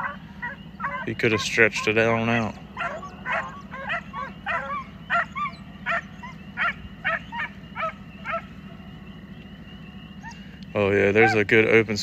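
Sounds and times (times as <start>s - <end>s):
hounds barking: 0.0s - 11.7s
steady low hum: 0.0s - 12.0s.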